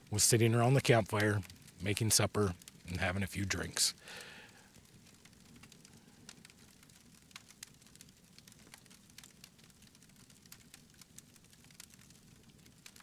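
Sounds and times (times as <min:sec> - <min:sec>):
campfire crackling: 0:00.0 - 0:13.0.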